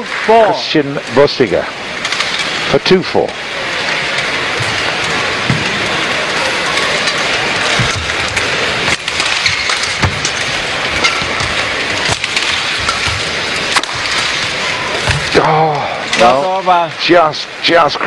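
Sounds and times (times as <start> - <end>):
hall and crowd noise: 0.0 - 18.0
rackets striking shuttlecock: 4.5 - 15.4.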